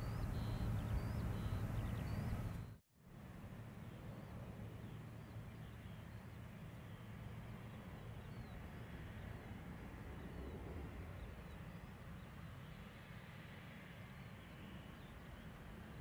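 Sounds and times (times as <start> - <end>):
small birds chirping: 0.0 - 2.8
faint jet engine rumble: 0.0 - 16.0.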